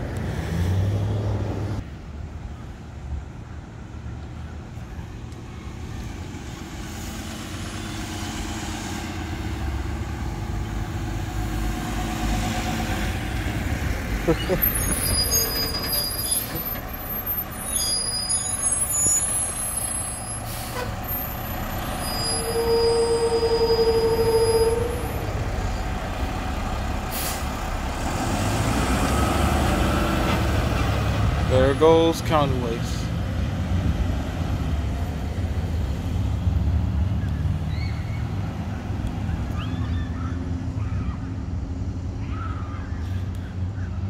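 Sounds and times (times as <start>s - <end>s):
garbage truck diesel engine rumble: 1.4s - 44.0s
air brake hiss: 20.4s - 21.0s, 27.1s - 27.6s.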